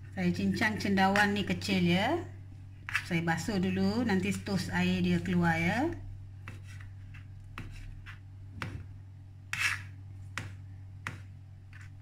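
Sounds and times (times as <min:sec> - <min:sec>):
low steady hum: 0:00.0 - 0:12.0
knife chopping on plastic board: 0:07.5 - 0:08.9, 0:09.6 - 0:11.9.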